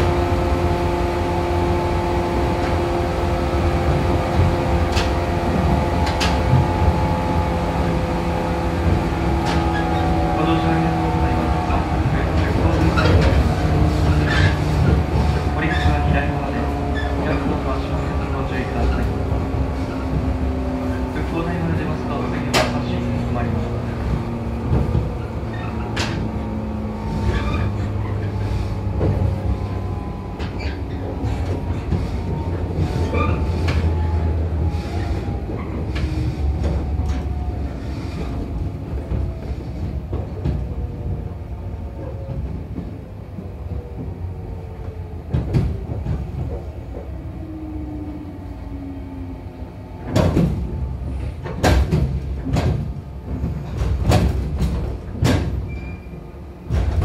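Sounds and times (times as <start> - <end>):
train motor whine: 0.0 - 57.0
wheels rumbling on track: 0.0 - 57.0
sharp knocks and clatter: 51.4 - 55.7, 56.7 - 57.0.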